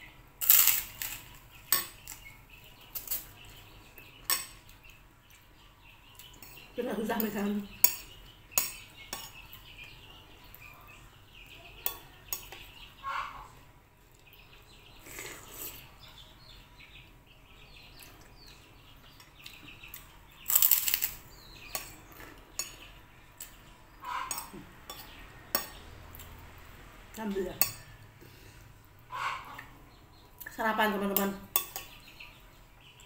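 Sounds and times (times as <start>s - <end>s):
eating sounds: 28.1s - 30.6s.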